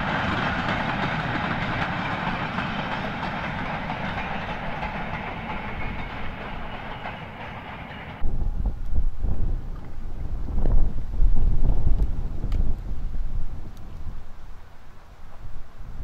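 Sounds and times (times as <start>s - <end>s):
goods train rolling along track: 0.0s - 8.3s.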